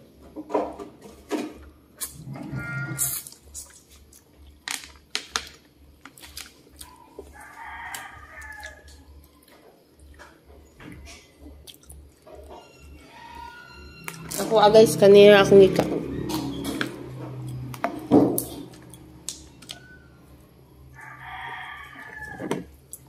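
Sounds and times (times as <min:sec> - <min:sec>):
rooster crowing: 0:02.4 - 0:03.0, 0:07.1 - 0:09.3, 0:12.6 - 0:14.3, 0:19.7 - 0:22.7.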